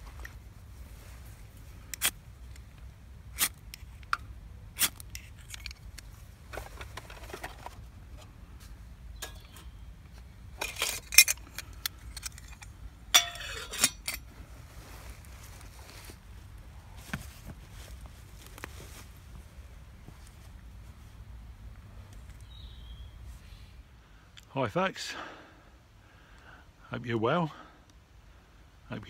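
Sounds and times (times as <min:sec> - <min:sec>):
metal pot clinking on stove: 0:13.1 - 0:14.2.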